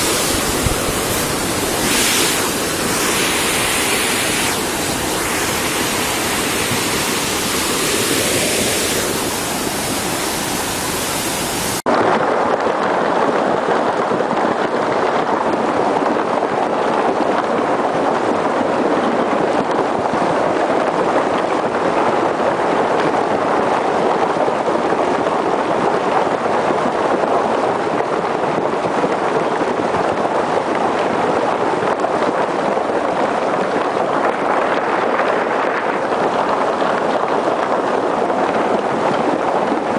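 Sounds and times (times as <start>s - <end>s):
floodwater rushing: 0.0s - 11.8s.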